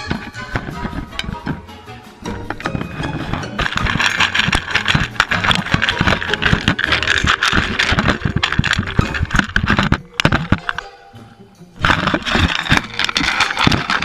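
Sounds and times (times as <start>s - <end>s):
kibble clicking and crunching: 0.0s - 10.9s, 11.8s - 14.0s
dog eating from a bowl: 2.4s - 10.8s, 11.8s - 14.0s.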